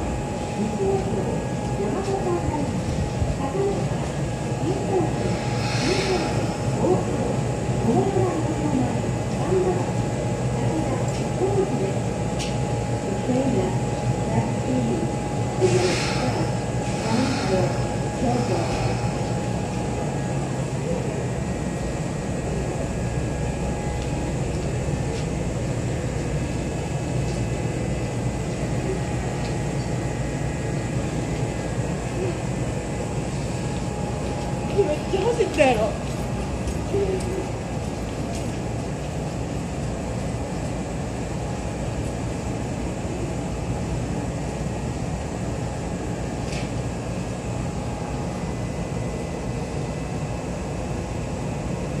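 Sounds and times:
electric train idling hum: 0.0s - 52.0s
short hiss: 5.2s - 6.7s.

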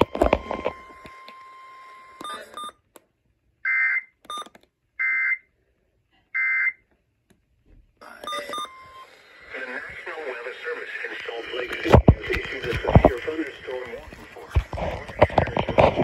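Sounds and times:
short beeps: 8.1s - 9.1s.

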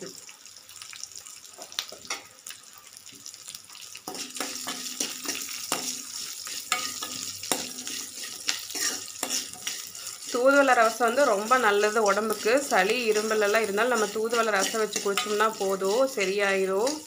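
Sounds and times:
spices sizzling in a pan: 0.0s - 17.0s
stirring clicks and scrapes in pan: 0.8s - 17.0s.

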